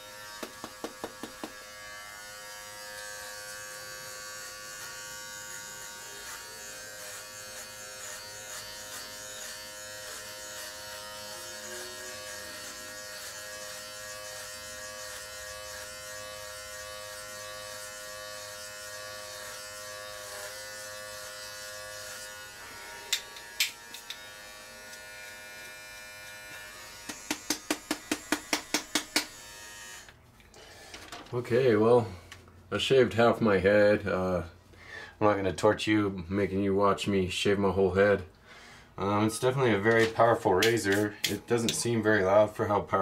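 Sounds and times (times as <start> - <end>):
hair trimmer buzzing: 0.0 - 30.9
sharp taps: 27.0 - 29.3.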